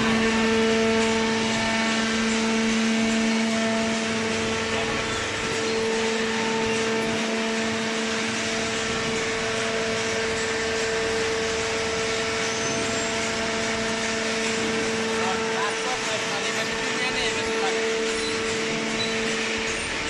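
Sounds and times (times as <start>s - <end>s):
hydraulic pump motor humming: 0.0s - 20.0s.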